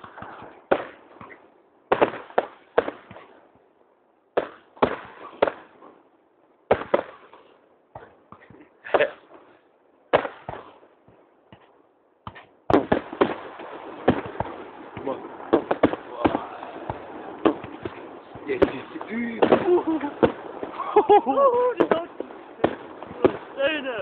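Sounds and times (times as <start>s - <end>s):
crackling firework reports: 0.0s - 3.4s, 4.3s - 5.9s, 6.7s - 10.8s, 12.3s - 24.0s
firework shells bursting: 4.4s - 5.8s, 6.7s - 24.0s.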